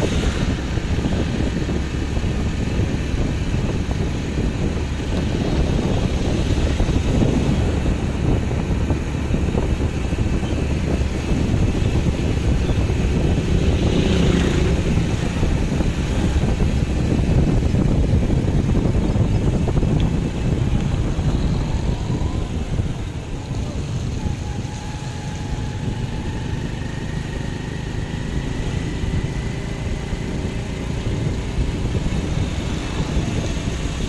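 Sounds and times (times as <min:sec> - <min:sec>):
vehicle engine and road rumble: 0:00.0 - 0:34.0
wind on microphone: 0:00.0 - 0:34.0.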